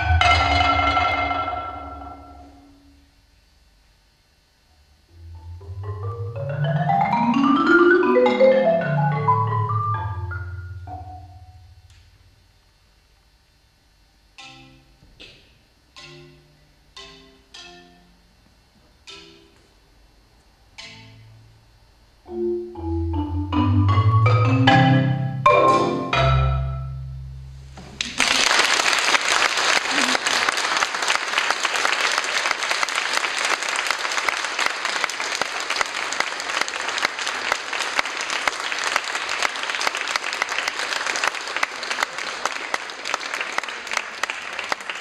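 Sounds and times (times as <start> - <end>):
marimba played with mallets: 0.0 - 2.9, 5.2 - 11.8, 14.4 - 14.9, 15.9 - 18.2, 22.3 - 27.2
audience applause: 28.0 - 45.0.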